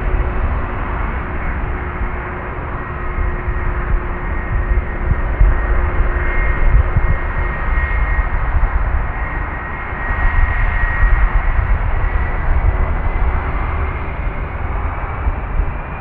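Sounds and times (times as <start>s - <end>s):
jet engines rumbling: 0.0s - 16.0s.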